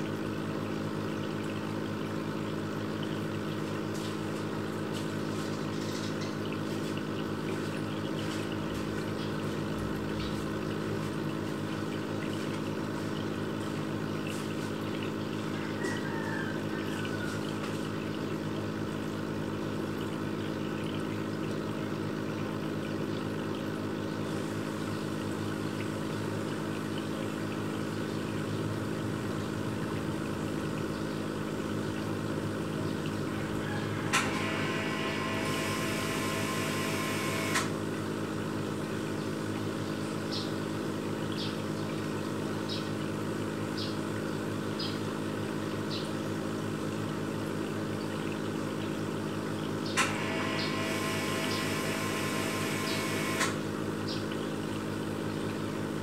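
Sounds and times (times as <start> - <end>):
aquarium pump humming: 0.0 - 56.0
higher whine: 34.1 - 37.7, 50.0 - 53.6.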